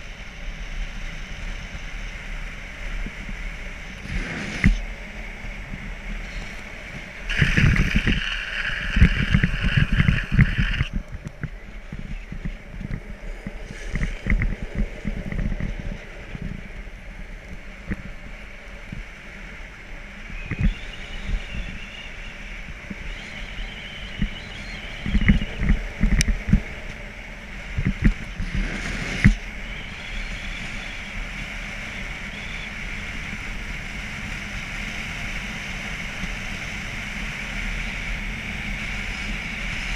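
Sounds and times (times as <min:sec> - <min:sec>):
road and wind noise: 0:00.0 - 0:39.9
hiss: 0:03.9 - 0:04.8, 0:07.3 - 0:10.9, 0:28.4 - 0:35.1.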